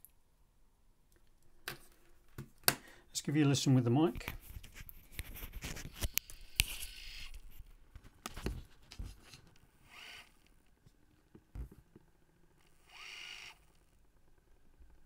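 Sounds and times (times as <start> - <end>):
short mechanism whirs: 12.6 - 13.9.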